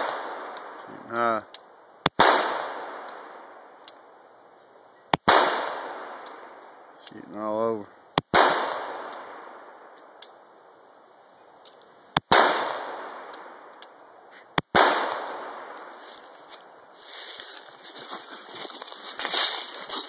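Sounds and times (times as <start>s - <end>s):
pistol shots with echo: 2.1s - 3.3s, 5.2s - 6.5s, 8.3s - 9.7s, 12.2s - 13.6s, 14.6s - 15.8s.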